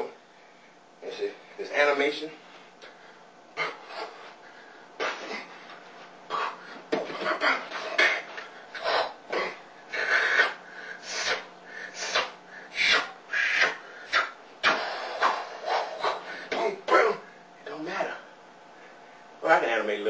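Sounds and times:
breathy mouth sounds: 3.6 - 16.6.

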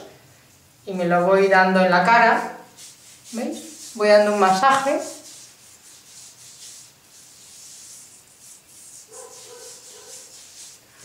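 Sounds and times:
fingertips rubbing skin: 2.7 - 11.0.

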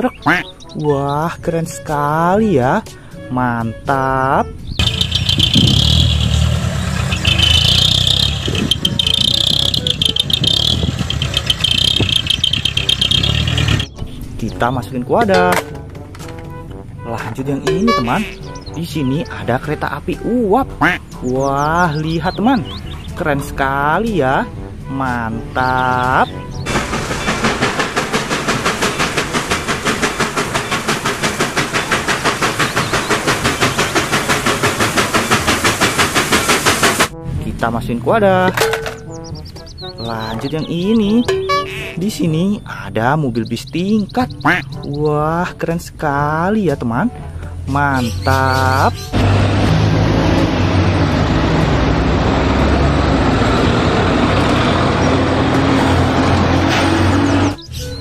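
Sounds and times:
street traffic noise: 4.4 - 37.4, 38.1 - 58.0
bus engine running: 4.5 - 14.4, 15.2 - 37.3, 47.2 - 57.9
steam locomotive chuffing: 4.8 - 14.0, 26.7 - 37.2, 49.1 - 57.7
hissing steam: 26.7 - 37.1.

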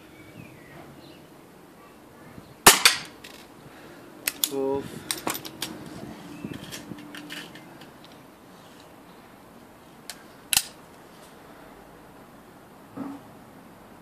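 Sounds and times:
air pistol metallic clicks: 4.2 - 5.8, 10.1 - 10.8
air pistol frame closing click: 10.1 - 10.8.

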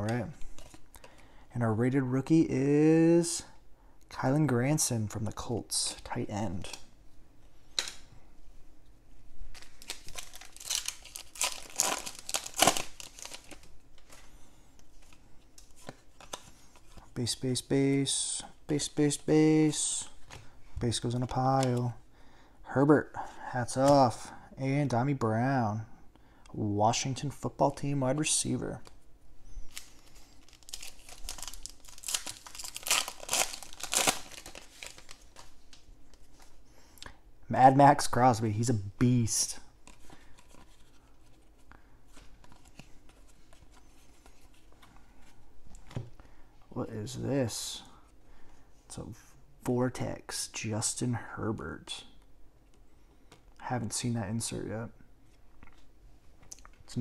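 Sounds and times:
foil wrapper crinkling: 9.5 - 14.2, 29.7 - 36.2.

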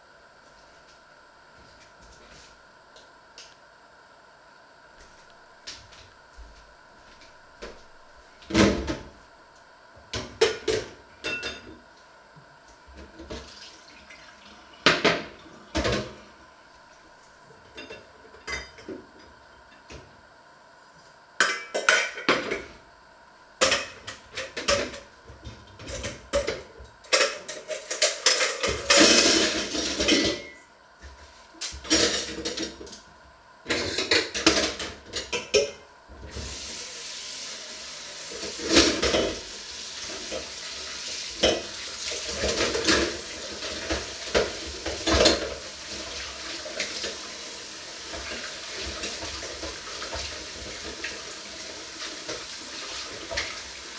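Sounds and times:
metal pots and pans clattering: 25.9 - 30.6.

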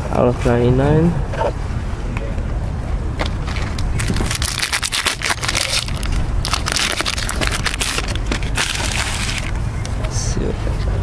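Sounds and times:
foil wrapper crinkling: 3.4 - 9.6.

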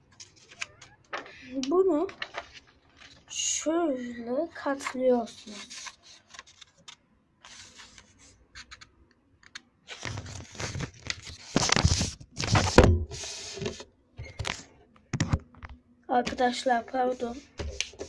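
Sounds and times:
paper rustling while folded: 0.1 - 8.3, 9.9 - 13.8.

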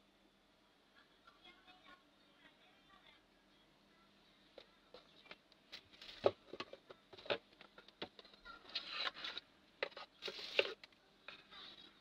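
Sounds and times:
paper box rustling scrapes: 8.6 - 10.8.

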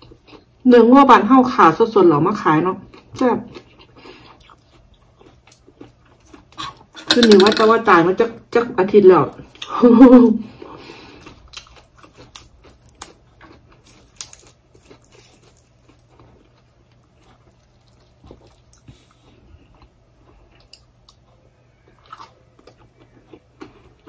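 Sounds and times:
chewing: 2.9 - 7.1, 10.5 - 24.0.

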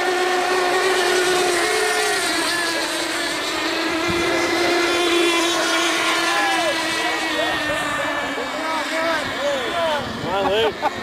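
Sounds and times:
model boat engines buzzing: 0.0 - 11.0.

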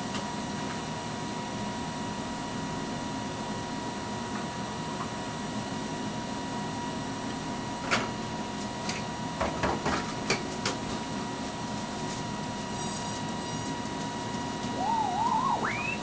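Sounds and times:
tape machines humming and whining: 12.4 - 16.0.

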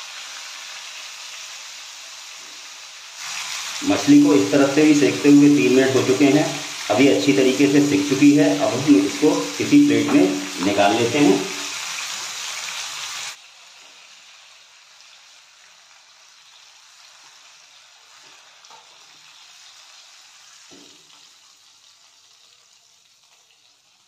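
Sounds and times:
fish sizzling in oil: 0.0 - 24.0
spatula knocking in pan: 20.7 - 21.0.

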